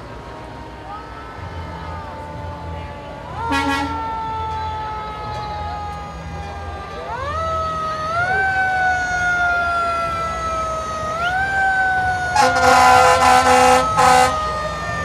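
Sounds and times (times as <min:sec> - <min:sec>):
siren wailing: 0:00.0 - 0:15.0
truck air horn blasts: 0:03.4 - 0:04.2, 0:12.4 - 0:14.5.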